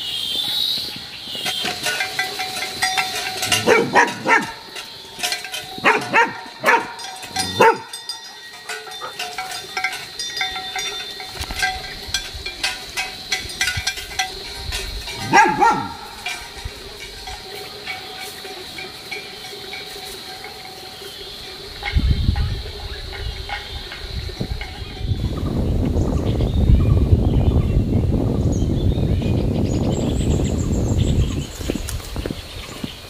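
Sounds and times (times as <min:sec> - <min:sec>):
dog barking: 0:03.6 - 0:04.6, 0:05.8 - 0:08.0, 0:15.2 - 0:16.2.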